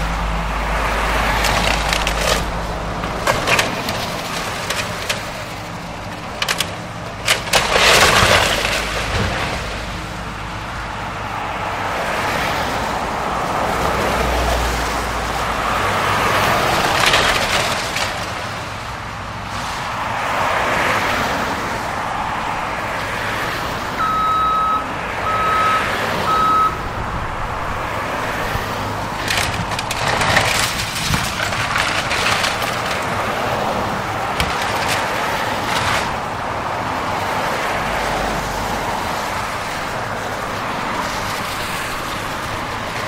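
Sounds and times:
wood cracking and crunching: 0:00.0 - 0:10.7, 0:14.0 - 0:19.1, 0:28.3 - 0:43.0
excavator diesel engine running: 0:00.0 - 0:20.0, 0:21.0 - 0:43.0
tyres hissing on wet road: 0:19.4 - 0:24.0
backup alarm beeping: 0:24.0 - 0:26.8.

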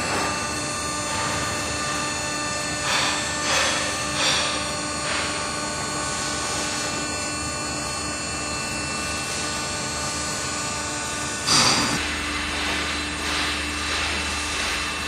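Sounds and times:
hydraulic drive running: 0:08.8 - 0:15.0.

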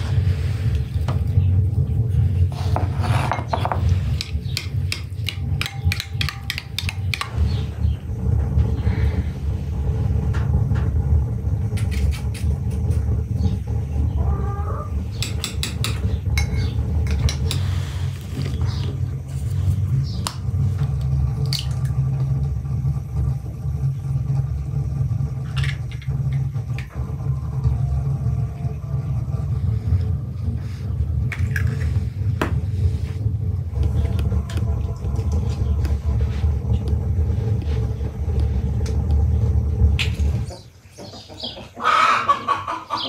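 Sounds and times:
low rumble: 0:00.0 - 0:41.0
egg cracking: 0:04.2 - 0:07.4.

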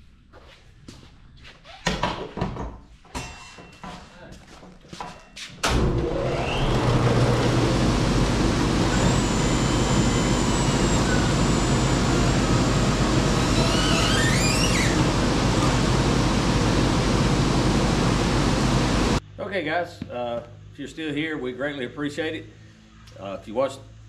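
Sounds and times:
band sawmill sawing log: 0:06.1 - 0:19.2
rising chirps: 0:08.6 - 0:15.0.

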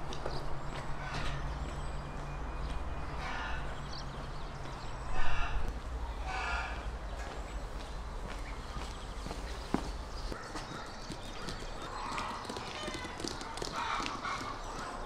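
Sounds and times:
footsteps on paving stones: 0:00.0 - 0:03.1, 0:04.4 - 0:05.0, 0:06.8 - 0:15.0.

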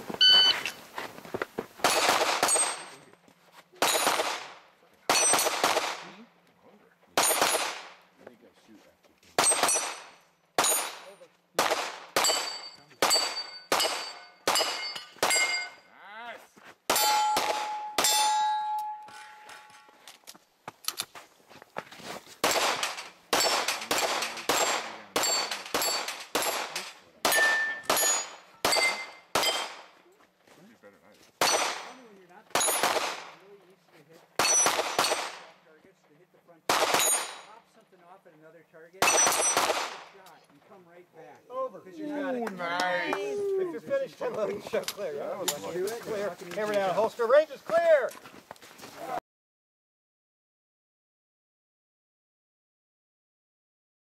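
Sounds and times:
gunshots: 0:01.8 - 0:03.0, 0:03.8 - 0:06.3, 0:07.2 - 0:08.0, 0:09.4 - 0:15.7, 0:16.9 - 0:18.3, 0:22.4 - 0:30.0, 0:31.4 - 0:33.5, 0:34.4 - 0:35.6, 0:36.7 - 0:37.6, 0:39.0 - 0:40.2
struck steel ringing: 0:12.2 - 0:15.9, 0:16.9 - 0:20.1, 0:22.8 - 0:29.7.

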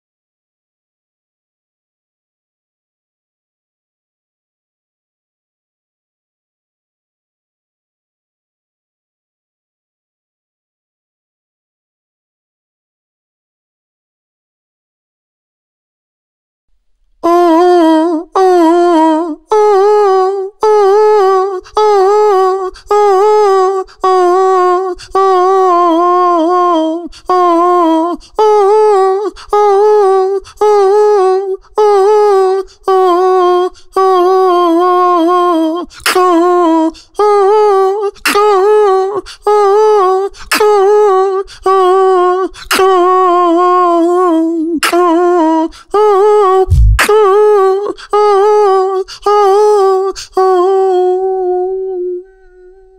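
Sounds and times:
person humming into microphone: 0:17.2 - 0:52.9
deep beatbox kick drum: 0:46.7 - 0:47.2.

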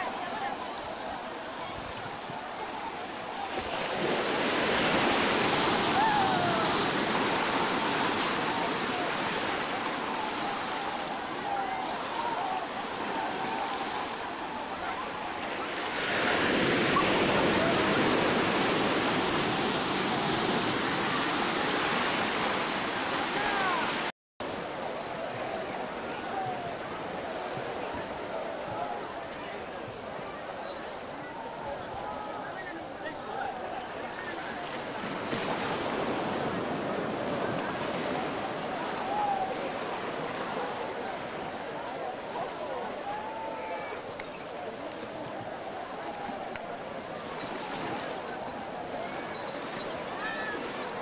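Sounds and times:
waves breaking on beach: 0:00.0 - 0:51.0.

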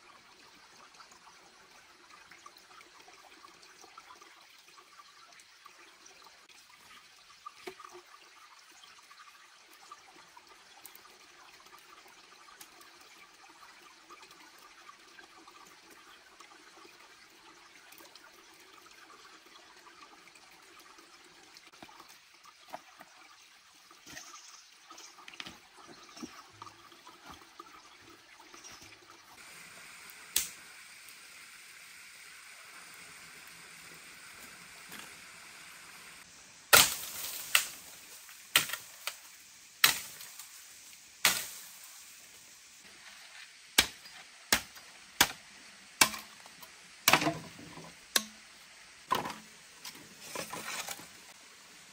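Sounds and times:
stream trickling: 0:00.0 - 0:51.9
machete chopping bamboo: 0:36.7 - 0:37.8, 0:39.8 - 0:40.2, 0:41.2 - 0:41.6, 0:43.8 - 0:45.4, 0:46.0 - 0:46.4, 0:47.1 - 0:47.5, 0:48.2 - 0:48.4.

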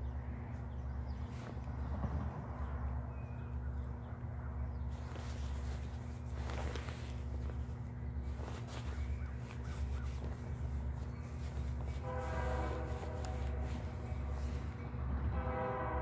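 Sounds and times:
diesel locomotive drone: 0:00.0 - 0:16.0
bird cawing: 0:08.8 - 0:12.0.

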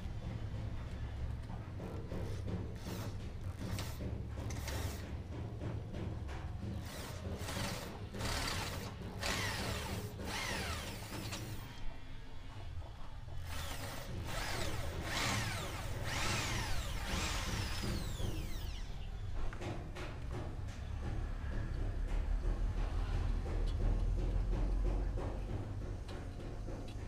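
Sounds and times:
electric drill boring into concrete: 0:03.7 - 0:05.0, 0:06.8 - 0:11.7, 0:13.4 - 0:18.9.

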